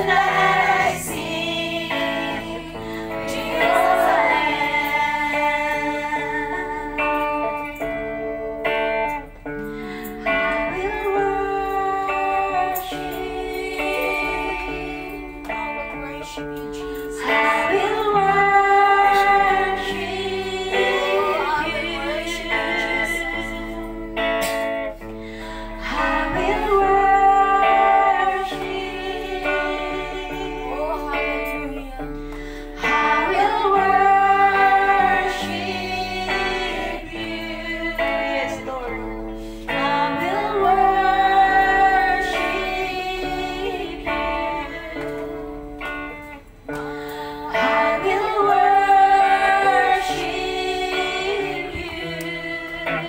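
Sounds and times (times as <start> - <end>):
guitar accompaniment: 0.0 - 53.0
woman singing into microphone: 0.0 - 53.0.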